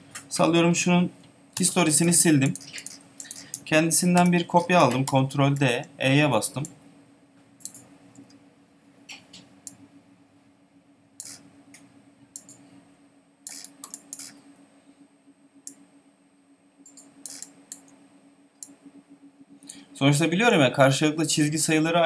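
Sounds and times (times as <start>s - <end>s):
faint steady hum: 0.0s - 22.0s
computer mouse and keyboard clicks: 1.6s - 5.7s, 7.6s - 8.3s, 12.4s - 12.6s, 13.5s - 14.4s, 16.8s - 17.9s.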